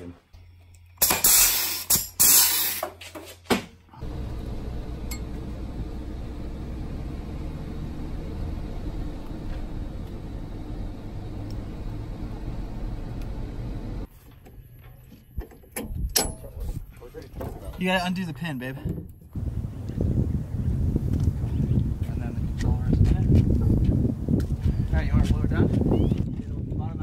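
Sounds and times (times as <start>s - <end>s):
loud hiss and clank: 1.0s - 3.1s
vehicle engine and road rumble: 3.9s - 27.0s.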